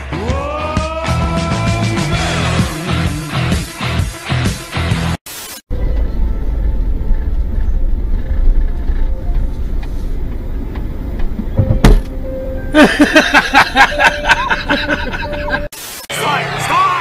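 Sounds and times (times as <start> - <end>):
car cabin rumble: 5.7 - 15.6
knock: 11.6 - 12.1.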